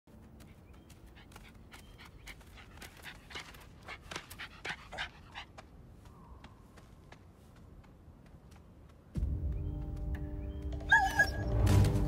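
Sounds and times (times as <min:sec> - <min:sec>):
puppy panting: 0:00.8 - 0:05.6.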